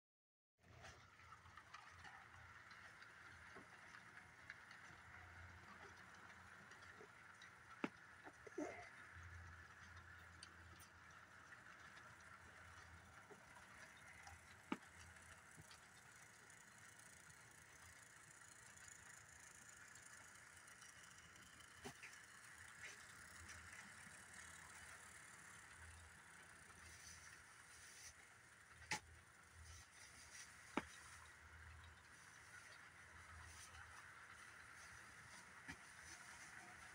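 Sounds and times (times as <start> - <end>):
model train humming on track: 9.0 - 36.9.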